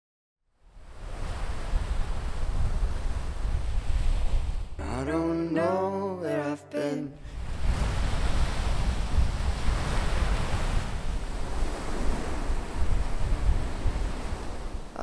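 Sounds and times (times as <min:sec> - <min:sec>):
wind buffeting microphone: 0:00.8 - 0:04.8, 0:07.2 - 0:15.0
surf breaking on pebble shore: 0:07.3 - 0:15.0.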